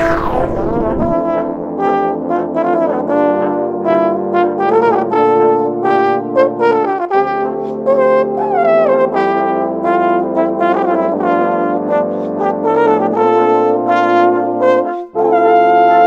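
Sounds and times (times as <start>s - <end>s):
white noise sweep: 0.0s - 1.6s.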